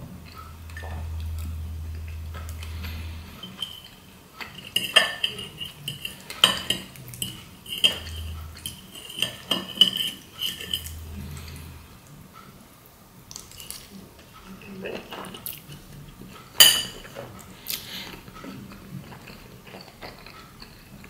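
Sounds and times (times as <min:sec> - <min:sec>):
fork scraping and clinking on plate: 0:00.3 - 0:11.9.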